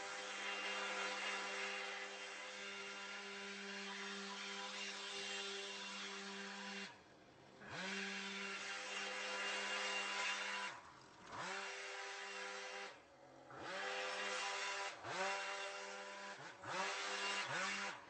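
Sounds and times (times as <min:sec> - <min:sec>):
small petrol engine revving: 0:07.6 - 0:18.0.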